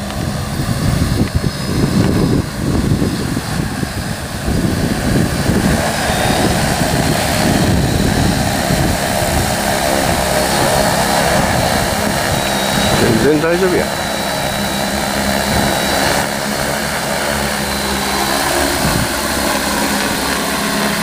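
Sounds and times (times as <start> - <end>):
drone propeller hum: 0.0 - 21.0.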